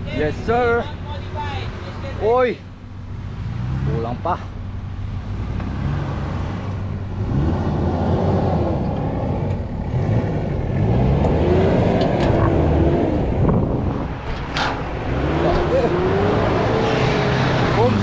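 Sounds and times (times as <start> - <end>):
off-road engine revving: 1.5 - 18.0.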